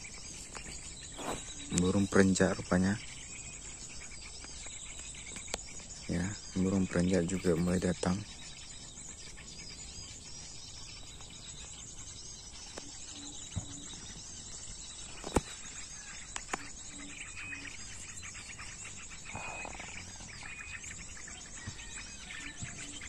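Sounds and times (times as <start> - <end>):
small birds chirping: 0.0 - 23.0.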